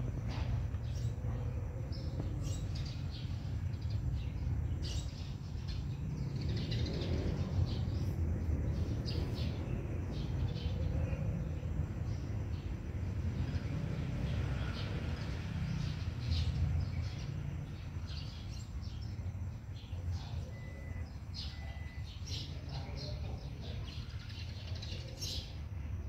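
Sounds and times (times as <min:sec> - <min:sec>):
steady low rumble: 0:00.0 - 0:13.2
small birds chirping: 0:00.0 - 0:26.0.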